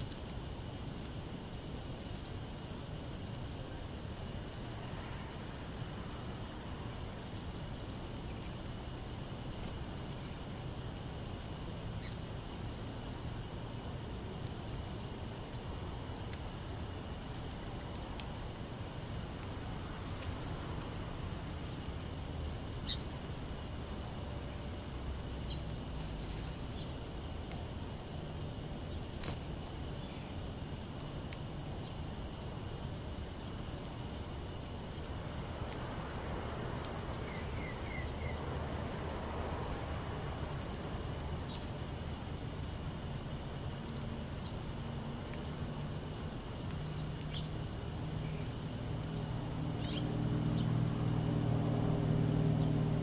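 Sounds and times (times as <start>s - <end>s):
birds pecking at seed: 0.0s - 53.0s
bird chips and chirps: 8.1s - 18.4s, 19.9s - 27.6s, 29.8s - 30.5s, 34.6s - 39.8s, 40.6s - 41.8s, 43.8s - 53.0s.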